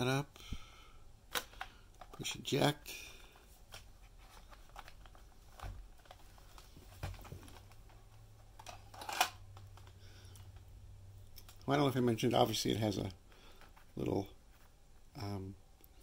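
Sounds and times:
plastic cassette clicks and rattles: 1.3s - 2.3s, 3.7s - 10.5s.

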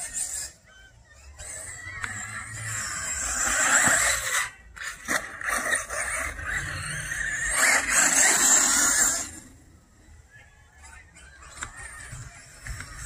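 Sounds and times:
rc car motor whining: 0.0s - 10.3s
tyres on dirt: 0.0s - 13.0s.

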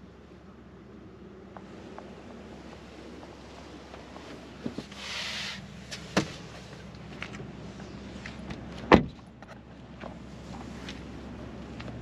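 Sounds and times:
car door shutting thud: 6.2s - 6.4s, 8.9s - 9.2s.

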